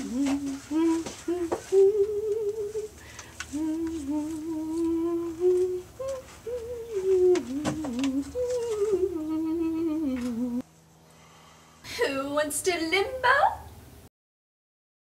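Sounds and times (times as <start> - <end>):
woman humming: 0.0 - 10.6.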